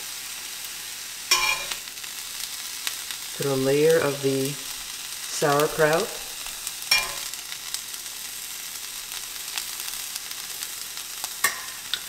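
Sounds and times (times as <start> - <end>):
sandwich sizzling in a skillet: 0.0 - 12.0.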